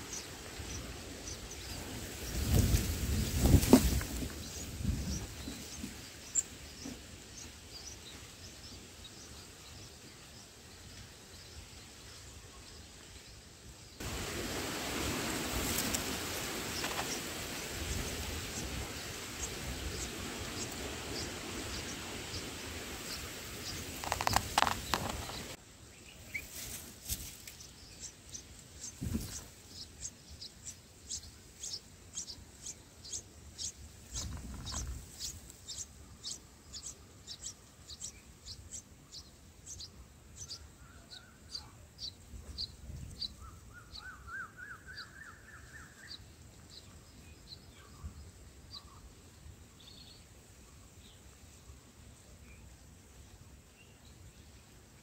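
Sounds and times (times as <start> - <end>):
steady hiss: 0.0 - 40.7
nestlings chirping: 15.5 - 44.0.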